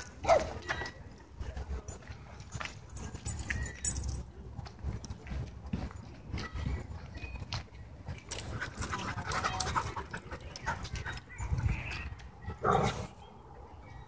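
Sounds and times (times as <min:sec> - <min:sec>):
dogs scuffling on dirt: 0:00.0 - 0:13.2
dogs panting: 0:08.3 - 0:11.8.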